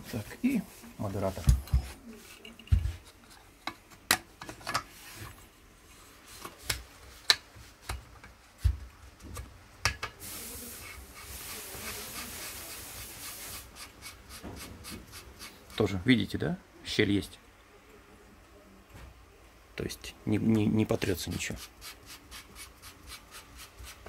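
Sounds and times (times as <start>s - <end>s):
dry rubbing of twisting metal: 13.3s - 15.8s.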